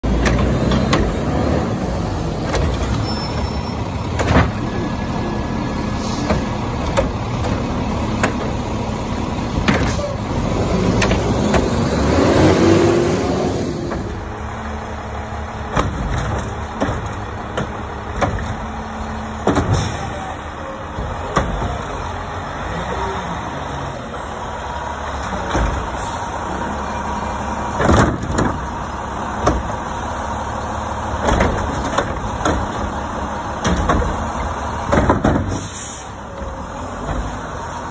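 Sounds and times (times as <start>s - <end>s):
diesel engine running: 0.0s - 37.9s.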